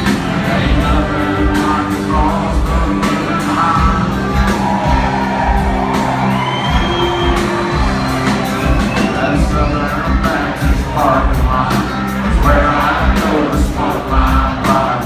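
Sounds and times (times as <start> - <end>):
drums steady beat: 0.0 - 15.0
live country band playing: 0.0 - 15.0
audience whooping and shouting: 3.7 - 10.7.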